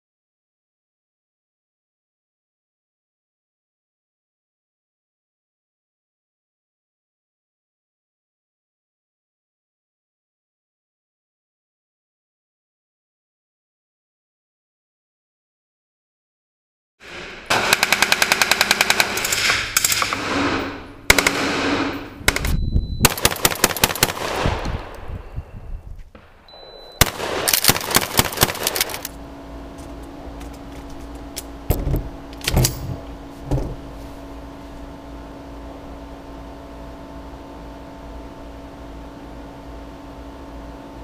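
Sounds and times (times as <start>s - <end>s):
rapid gunfire bursts: 17.0s - 24.6s, 27.0s - 29.1s
steady hum: 17.0s - 41.0s.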